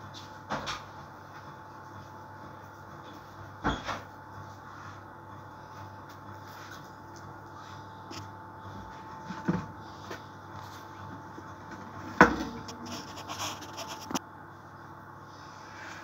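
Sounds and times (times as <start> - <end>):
faint steady hum: 0.0 - 16.0
scraping and rustling: 11.7 - 14.2.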